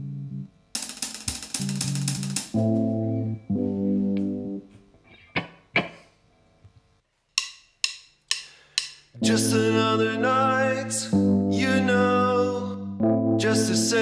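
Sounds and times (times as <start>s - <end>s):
sharp plucked notes: 0.9s - 4.6s.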